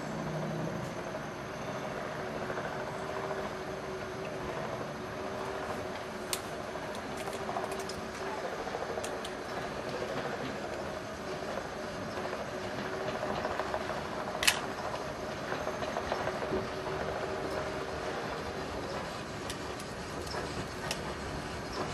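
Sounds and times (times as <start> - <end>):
steam locomotive running: 0.0 - 21.9
sharp clicks: 14.4 - 14.7.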